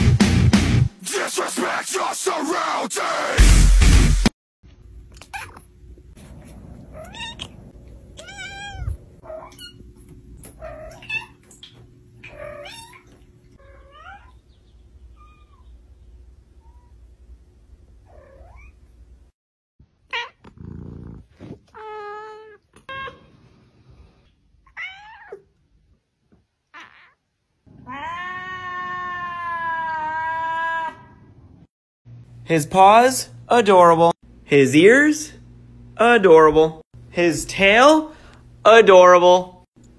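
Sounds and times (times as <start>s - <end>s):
cats meowing: 6.9s - 9.8s, 12.2s - 14.4s, 26.7s - 31.1s.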